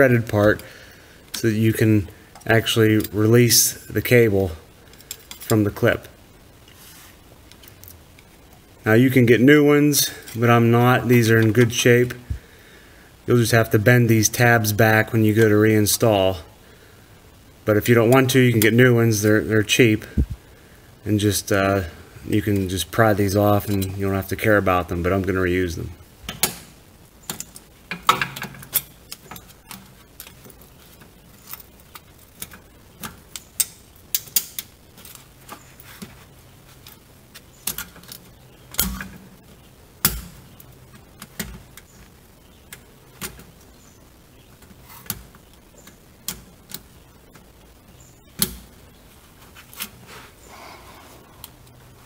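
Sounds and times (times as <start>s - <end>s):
hand tool clicking and scraping metal: 23.6s - 24.0s.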